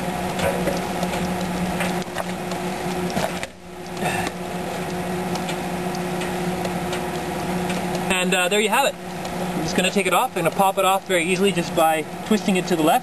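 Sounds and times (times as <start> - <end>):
steady electrical hum: 0.0 - 13.0
welding arc crackling: 0.0 - 13.0.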